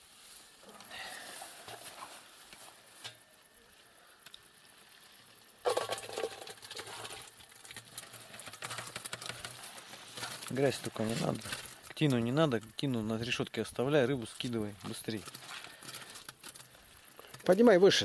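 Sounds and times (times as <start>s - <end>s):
small fish flapping on a mesh sieve: 5.7s - 12.8s, 14.0s - 18.0s.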